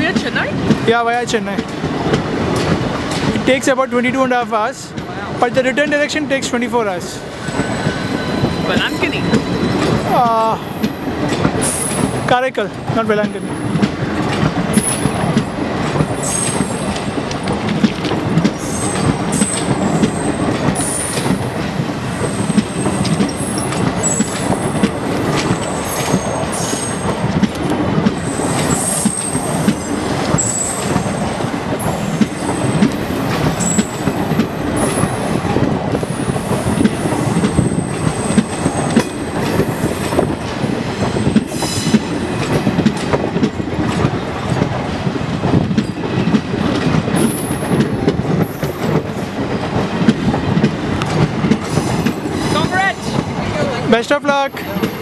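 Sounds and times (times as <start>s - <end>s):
train wheels rumbling on rails: 0.0s - 55.0s
high-pitched wheel squeals: 7.2s - 10.8s, 28.2s - 32.2s.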